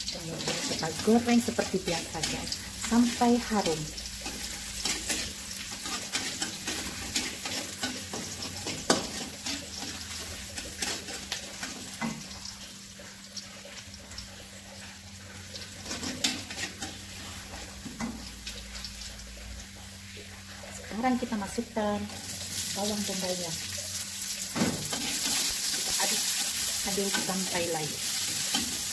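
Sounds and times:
spatula scraping wok: 0:00.0 - 0:12.4, 0:14.8 - 0:18.2, 0:22.2 - 0:28.9
garlic sizzling in oil: 0:00.0 - 0:28.9.

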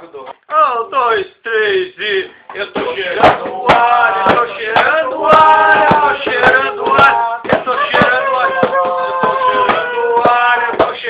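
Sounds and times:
loud knocks and bangs: 0:02.8 - 0:11.0.

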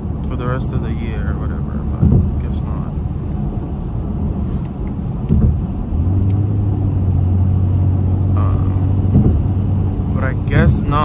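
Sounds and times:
car engine and road rumble: 0:00.0 - 0:11.0
thump inside car: 0:02.0 - 0:02.3, 0:05.3 - 0:05.7, 0:09.1 - 0:09.4.

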